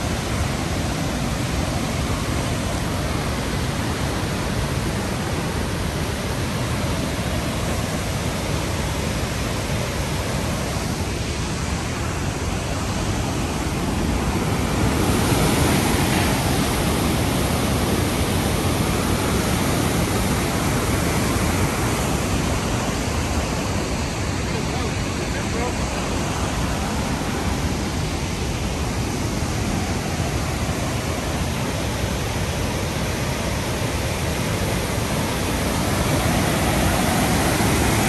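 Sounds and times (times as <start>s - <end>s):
waterfall rushing over boulders: 0.0s - 38.0s.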